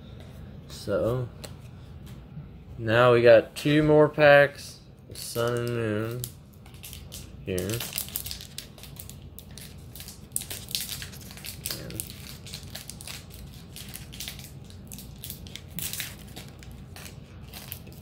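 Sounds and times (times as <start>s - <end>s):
foil wrapper crinkling: 5.3s - 18.0s.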